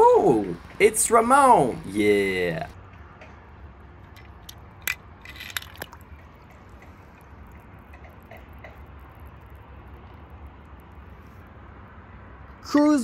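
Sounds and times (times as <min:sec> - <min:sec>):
water splashing and dripping: 0:05.3 - 0:10.8.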